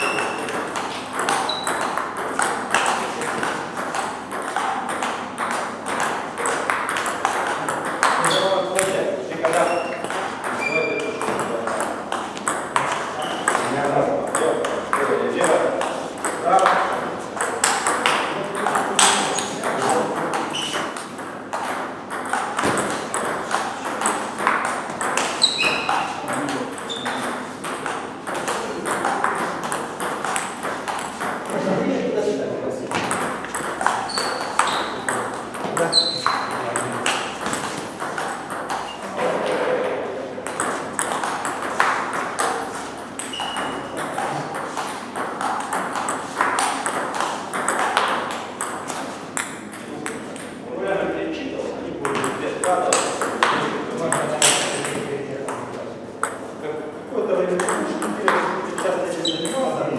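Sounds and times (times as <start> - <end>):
table tennis ball clicking: 0.0 - 8.4, 17.4 - 31.5, 32.9 - 39.0, 40.4 - 50.6
hits from neighbouring table: 17.5 - 31.5.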